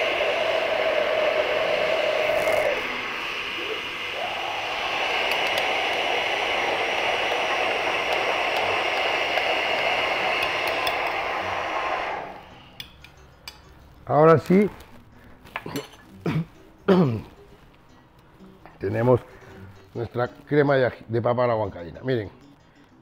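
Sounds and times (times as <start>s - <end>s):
blender motor running: 0.0s - 12.7s.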